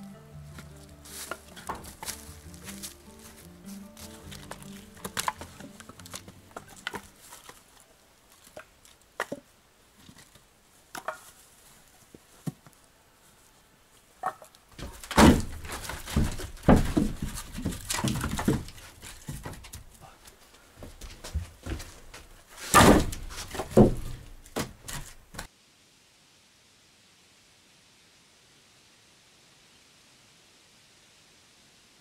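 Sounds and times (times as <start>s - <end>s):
heavy thumps and bumps: 1.4s - 7.1s, 14.8s - 20.0s, 20.8s - 25.5s.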